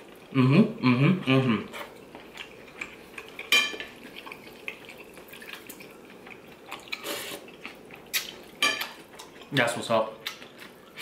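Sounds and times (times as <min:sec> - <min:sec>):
broth dripping into a bowl: 0:02.3 - 0:09.6.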